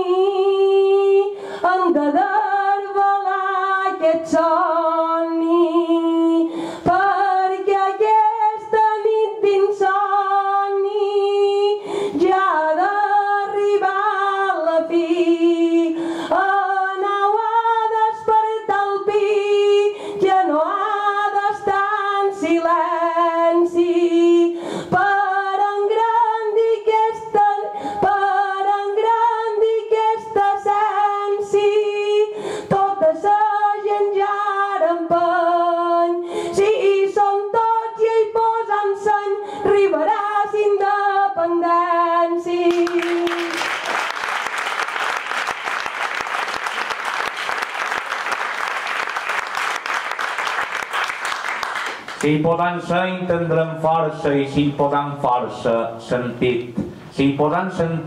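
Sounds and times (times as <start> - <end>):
woman singing unaccompanied: 0.0 - 43.7.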